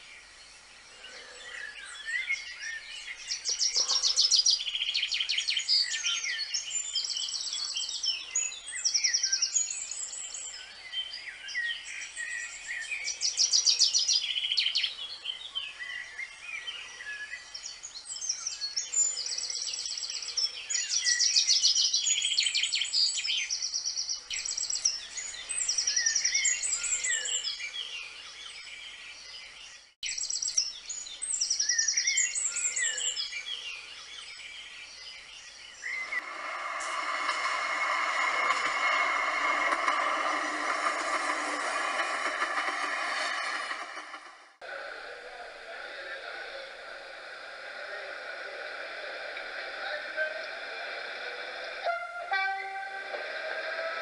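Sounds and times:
songbirds singing in chorus: 0.0s - 36.3s.

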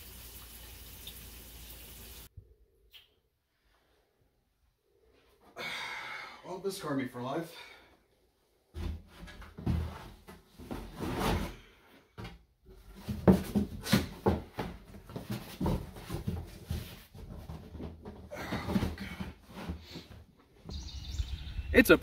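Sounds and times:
cardboard box knocks and bumps: 12.9s - 20.0s.

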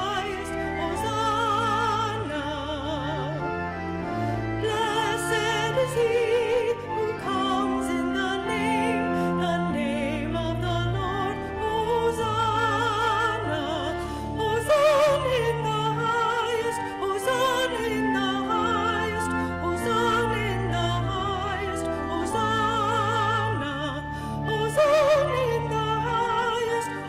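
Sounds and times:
woman singing operatically: 0.0s - 3.6s, 4.6s - 27.0s.

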